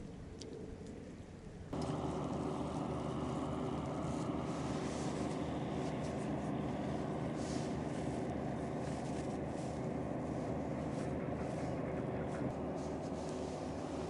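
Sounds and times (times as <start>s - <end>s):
faint hum: 0.0s - 14.0s
low engine rumble: 0.0s - 14.0s.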